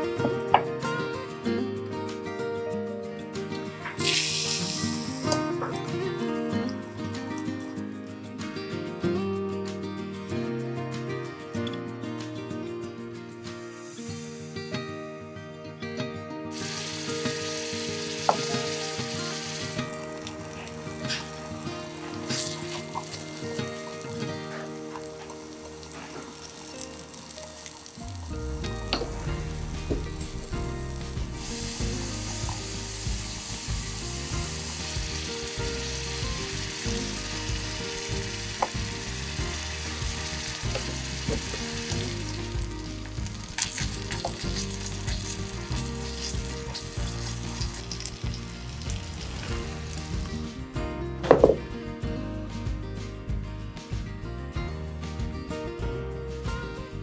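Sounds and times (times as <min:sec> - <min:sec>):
food sizzling in a wok: 0:03.8 - 0:07.7, 0:13.7 - 0:14.7, 0:16.5 - 0:50.6.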